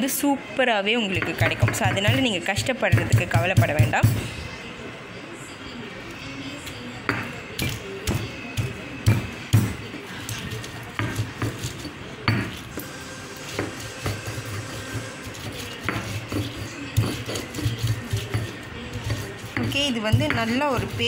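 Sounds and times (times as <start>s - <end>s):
stone roller grinding: 10.3s - 21.0s.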